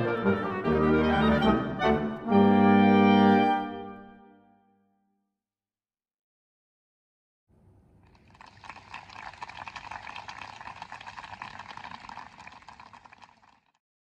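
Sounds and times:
audience applauding: 8.0 - 13.8.

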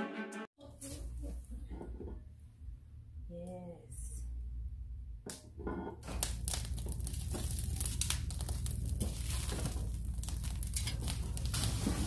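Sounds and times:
wood fire crackling and popping: 6.0 - 12.0.

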